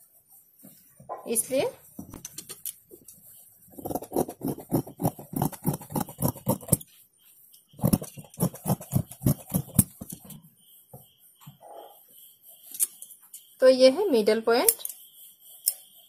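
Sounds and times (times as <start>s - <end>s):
scissors snipping fabric: 3.8s - 6.8s, 7.8s - 10.2s.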